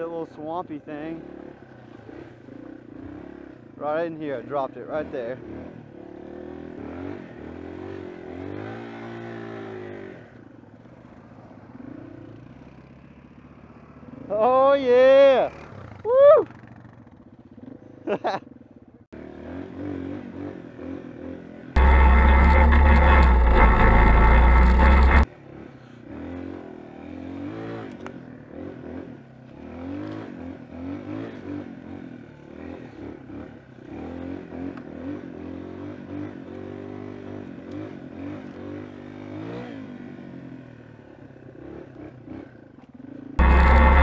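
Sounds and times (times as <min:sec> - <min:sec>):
four-wheeler engine drone: 0:00.0 - 0:44.0
motorcycle engine revving: 0:01.1 - 0:10.4, 0:19.2 - 0:25.3, 0:43.4 - 0:44.0.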